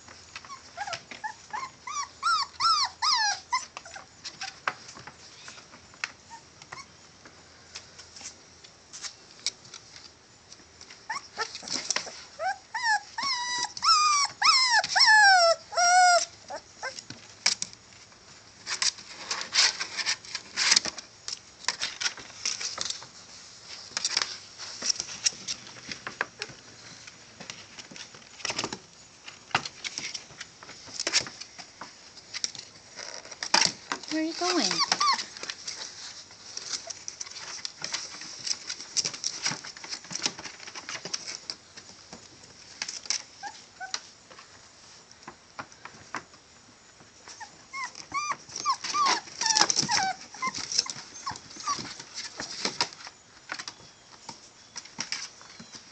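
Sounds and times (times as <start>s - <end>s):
puppies scratching on a towel: 0.0s - 6.9s, 7.7s - 55.9s
puppies whimpering: 0.4s - 4.1s, 11.1s - 17.0s, 34.1s - 35.3s, 47.3s - 52.0s
high puppy whines: 0.4s - 4.6s, 11.1s - 17.1s, 34.1s - 35.4s, 47.2s - 52.0s.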